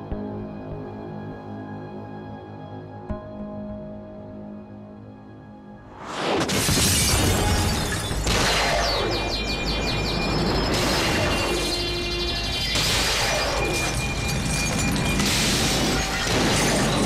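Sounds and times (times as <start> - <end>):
dramatic score music: 0.0 - 17.0
glass windows shattering: 6.5 - 8.4, 12.8 - 17.0
tinkling glass shards: 13.3 - 17.0.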